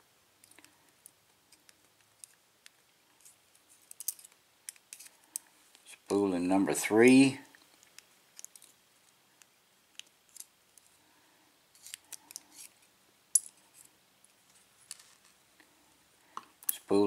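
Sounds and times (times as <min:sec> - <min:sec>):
small lock pin clicks and scrapes: 0:03.2 - 0:05.4, 0:11.8 - 0:12.8.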